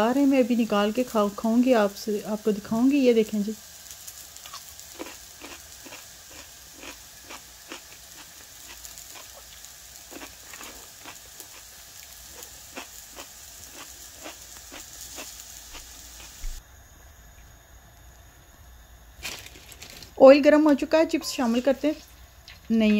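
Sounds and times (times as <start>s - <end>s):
chicken sizzling in oil: 0.0s - 16.6s
crackling pops of frying: 0.0s - 16.6s, 19.2s - 22.9s.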